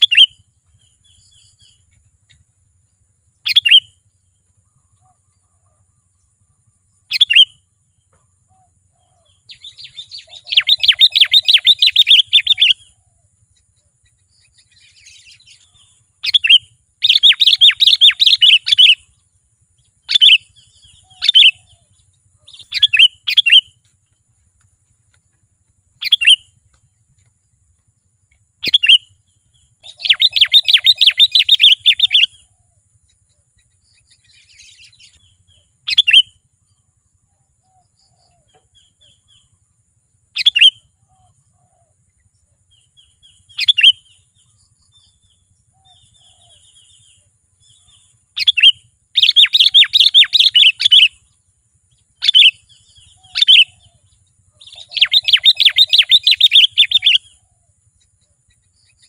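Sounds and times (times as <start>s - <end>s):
bird chattering runs: 20.1s - 32.3s, 54.6s - 57.3s
bulbul calling sharp notes: 26.0s - 26.6s, 29.8s - 32.4s, 48.4s - 51.2s, 54.6s - 57.4s.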